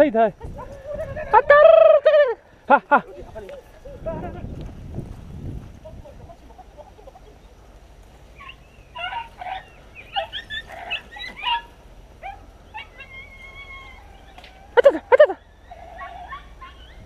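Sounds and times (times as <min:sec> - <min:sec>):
dogs yelping: 0:00.6 - 0:02.4, 0:08.3 - 0:17.0
dog whining: 0:08.4 - 0:17.0.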